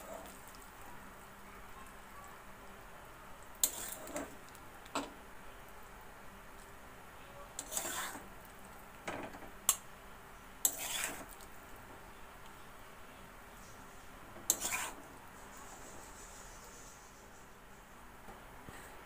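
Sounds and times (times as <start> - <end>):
metal spoon scraping pan: 3.6 - 4.4, 7.6 - 8.2, 10.6 - 11.4, 14.5 - 15.0.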